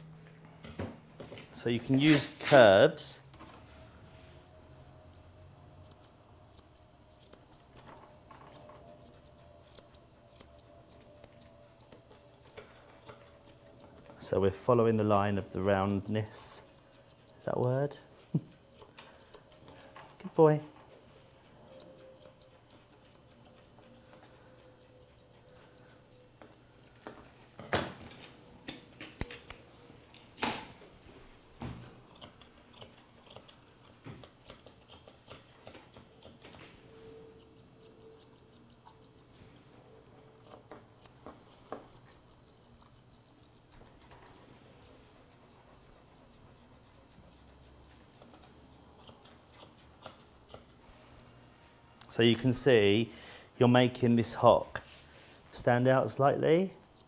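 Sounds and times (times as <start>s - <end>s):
grooming scissors snipping: 5.0s - 14.2s, 15.0s - 20.0s, 21.6s - 27.2s, 32.1s - 39.5s, 40.2s - 51.0s, 56.1s - 57.0s.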